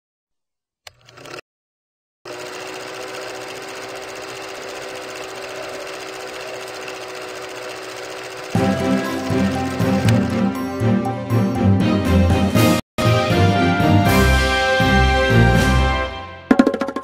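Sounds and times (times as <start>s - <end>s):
film projector clattering: 0.9s - 1.4s, 2.3s - 10.6s
music: 8.6s - 17.0s.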